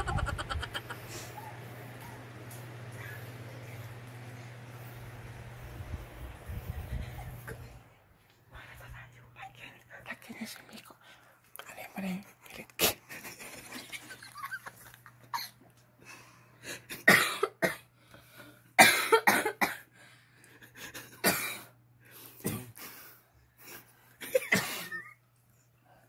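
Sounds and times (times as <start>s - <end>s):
people stifling laughter: 0.0s - 1.3s, 13.1s - 15.5s.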